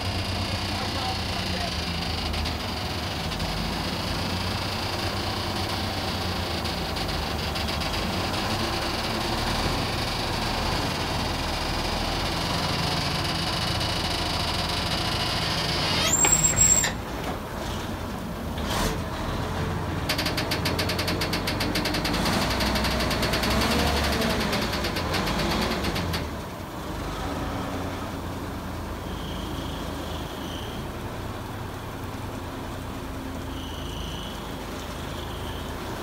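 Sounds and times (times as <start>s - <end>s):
hydraulic hoist clattering: 0.0s - 19.0s
diesel truck engine running: 0.0s - 36.0s.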